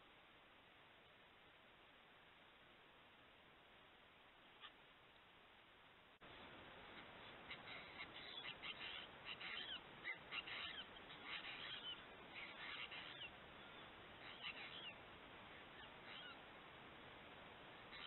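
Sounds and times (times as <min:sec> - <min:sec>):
steady hiss: 0:00.0 - 0:18.0
birds chattering calls: 0:06.9 - 0:16.5.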